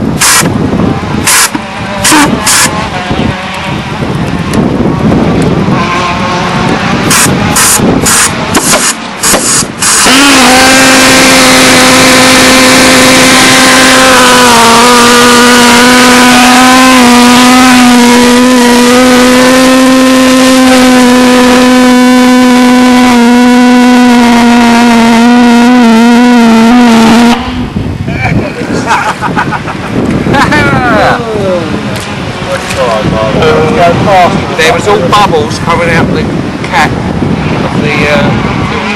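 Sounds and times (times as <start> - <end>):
pulsejet engine popping and droning: 0.1 - 27.5.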